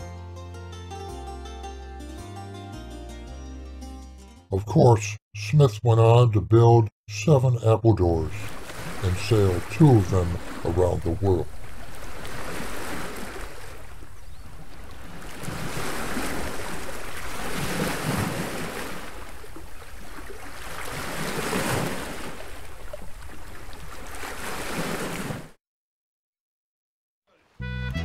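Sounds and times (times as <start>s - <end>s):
ocean waves washing in: 8.0s - 25.6s.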